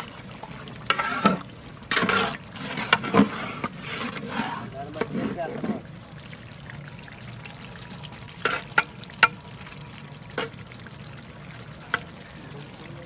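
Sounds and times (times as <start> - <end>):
ladle stirring thick curry: 0.5 - 6.1, 8.1 - 12.8.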